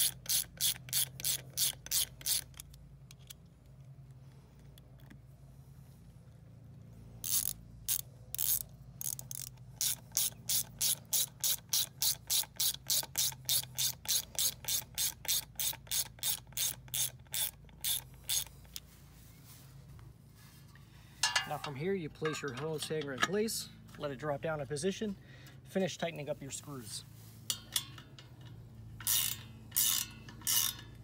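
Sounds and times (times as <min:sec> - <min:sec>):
ratchet wrench clicking: 0:00.0 - 0:03.4, 0:07.2 - 0:18.8, 0:27.5 - 0:31.0.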